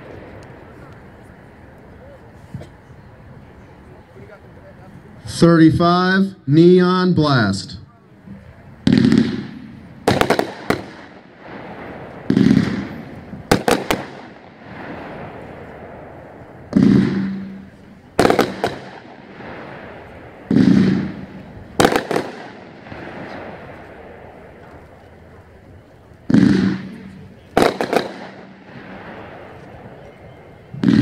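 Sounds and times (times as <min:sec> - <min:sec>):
firework bangs overhead: 0:08.8 - 0:24.9, 0:26.2 - 0:30.1.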